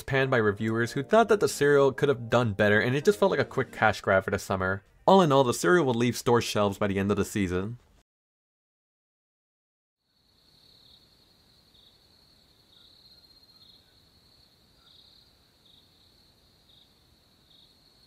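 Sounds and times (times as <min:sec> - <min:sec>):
faint crickets chirping: 0:10.0 - 0:18.0.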